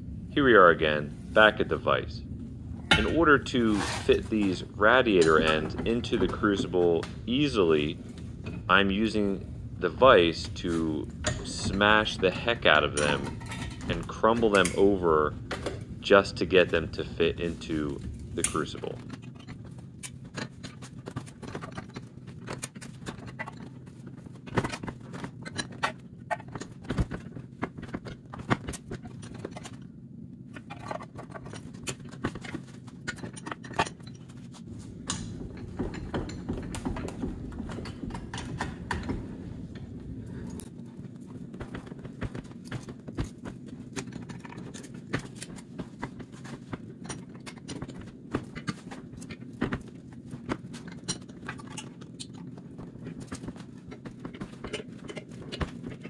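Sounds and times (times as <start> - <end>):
low hum: 0.0 - 56.0
metal clanking and crunching: 2.8 - 29.9.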